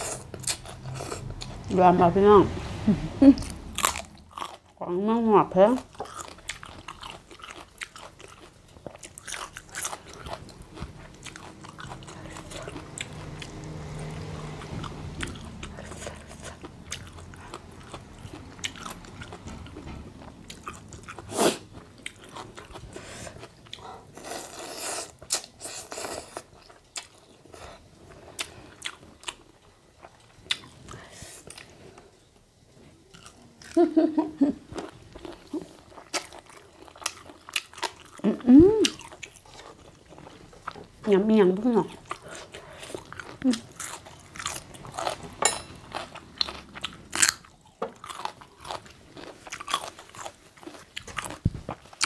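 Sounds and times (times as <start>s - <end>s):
chewing and biting: 5.9s - 30.9s, 34.8s - 41.0s, 41.8s - 52.0s.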